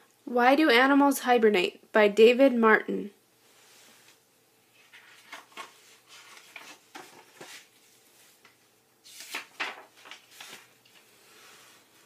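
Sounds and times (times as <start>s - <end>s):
book pages turning: 4.8s - 12.0s.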